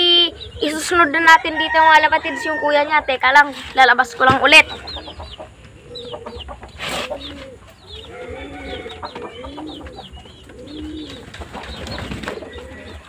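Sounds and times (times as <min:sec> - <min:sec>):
birds chirping: 0:00.0 - 0:13.0
pigeons cooing: 0:00.0 - 0:13.0.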